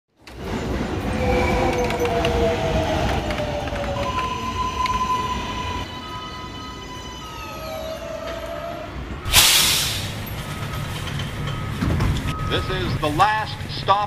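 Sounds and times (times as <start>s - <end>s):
subway train motors whining: 0.2s - 13.8s
brakes air hissing: 9.2s - 10.4s.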